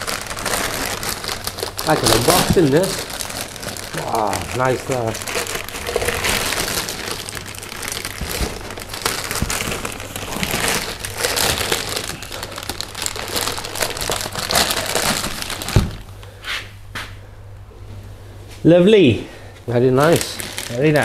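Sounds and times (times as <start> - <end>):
plastic bag crinkling: 0.0 - 16.3, 20.0 - 21.0.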